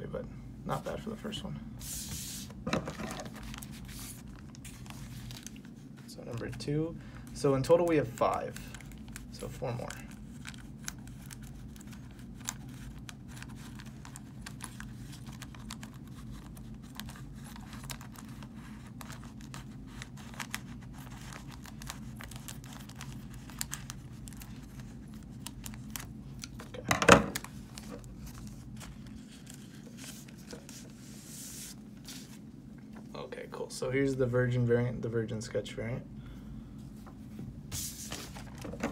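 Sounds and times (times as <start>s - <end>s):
plastic bag crinkling: 2.8s - 6.6s, 7.8s - 30.9s.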